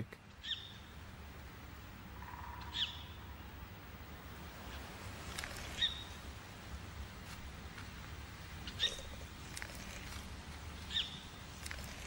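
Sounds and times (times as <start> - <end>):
bird chirping: 0.3 - 1.0, 2.1 - 3.5, 4.6 - 6.2, 8.6 - 10.2, 10.8 - 12.0.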